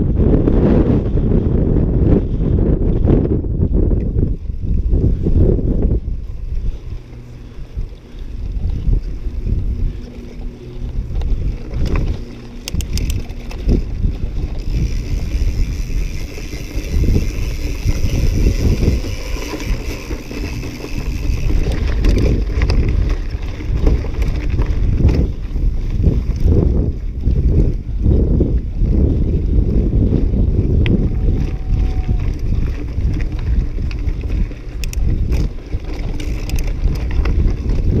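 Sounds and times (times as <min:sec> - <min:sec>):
wind buffeting microphone: 0:00.0 - 0:38.0
bike knocks and rattles: 0:09.8 - 0:28.7, 0:29.7 - 0:38.0.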